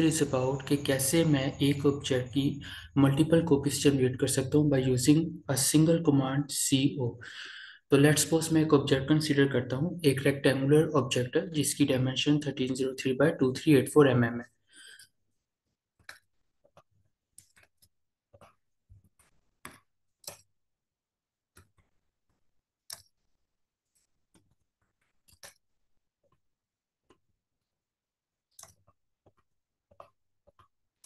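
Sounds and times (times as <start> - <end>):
keyboard and mouse clicks: 15.9 - 20.6, 21.5 - 23.3, 23.9 - 26.4, 28.5 - 31.0.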